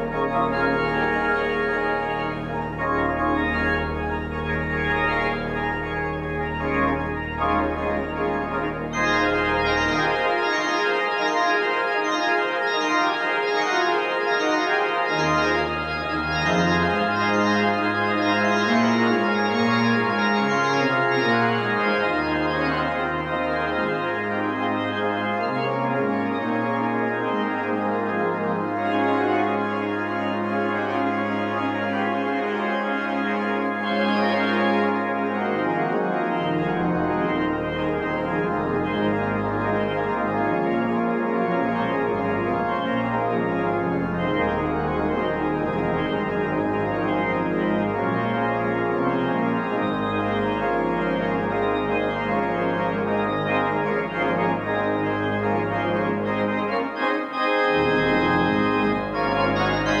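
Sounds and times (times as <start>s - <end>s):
church organ chords: 0.0s - 60.0s.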